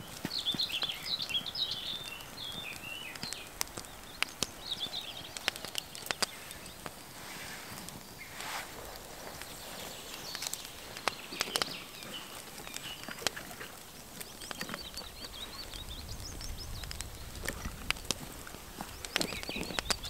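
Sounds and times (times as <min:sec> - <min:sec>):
small birds singing: 0:00.0 - 0:20.0
gear clicking and rustling: 0:08.8 - 0:20.0.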